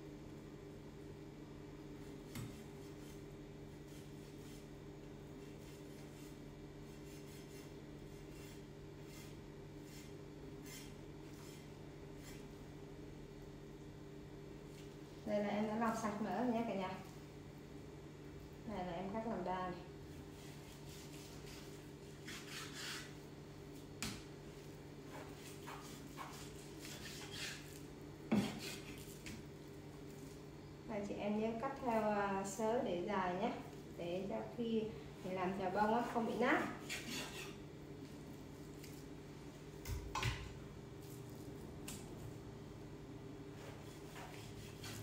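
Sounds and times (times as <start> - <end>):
steady low hum: 0.0 - 45.0
knife scraping and slicing meat: 2.3 - 4.7, 5.4 - 12.6, 20.3 - 23.3, 25.1 - 29.4, 36.0 - 37.6, 43.6 - 45.0.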